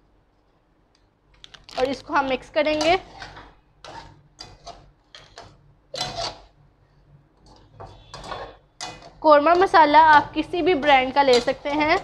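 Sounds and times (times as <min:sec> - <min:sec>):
metal spoon scraping a metal pan: 0:02.6 - 0:06.5, 0:07.8 - 0:12.0.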